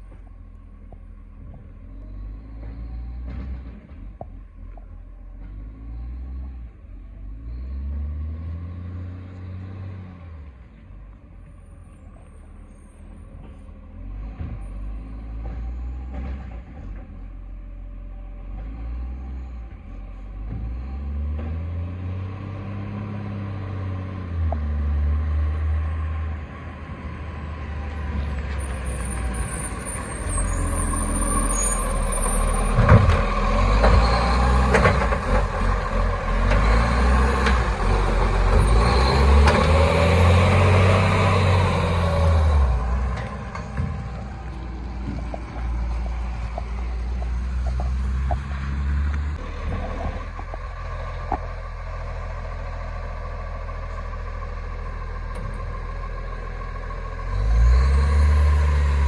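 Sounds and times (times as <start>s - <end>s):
garbage truck diesel engine revving: 12.5s - 59.0s.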